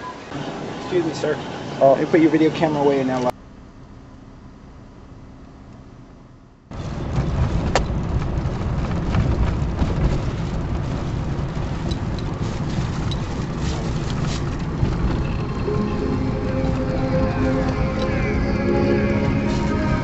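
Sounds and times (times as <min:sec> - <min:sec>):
car road and wind noise: 0:00.0 - 0:20.0.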